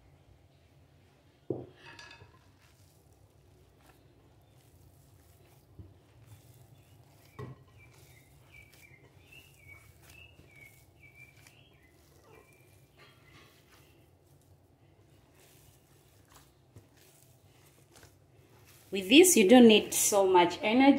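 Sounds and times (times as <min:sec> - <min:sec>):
hand kneading dough in glass bowl: 0:01.7 - 0:20.9
bird chirping: 0:06.3 - 0:14.0.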